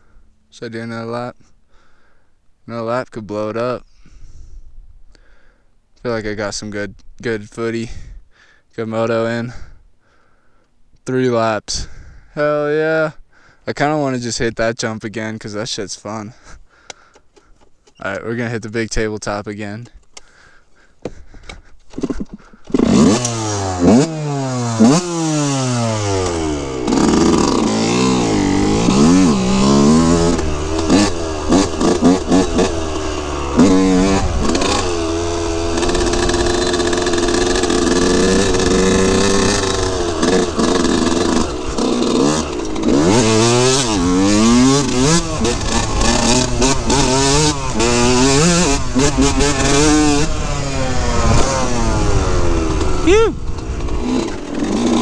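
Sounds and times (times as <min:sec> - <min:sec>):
two-stroke engine revving: 0:22.0 - 0:55.0.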